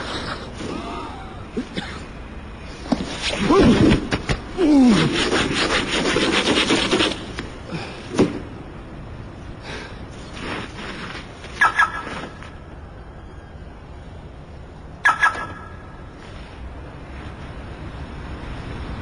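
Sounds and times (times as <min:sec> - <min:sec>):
fast rhythmic scraping: 0:04.9 - 0:07.4.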